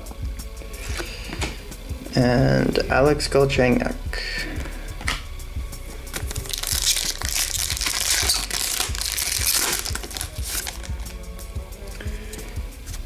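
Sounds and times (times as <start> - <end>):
plastic wrapper tearing and crinkling: 6.1 - 11.1.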